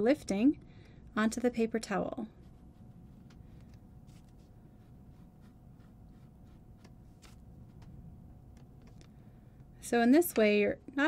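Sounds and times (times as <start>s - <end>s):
faint steady hum: 0.0s - 11.0s
brush scratching on paper: 2.4s - 3.3s, 4.0s - 7.4s.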